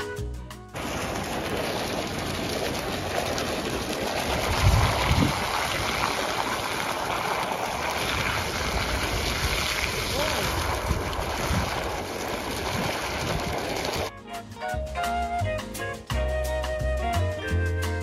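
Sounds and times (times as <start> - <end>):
water jet splashing: 0.8 - 14.1.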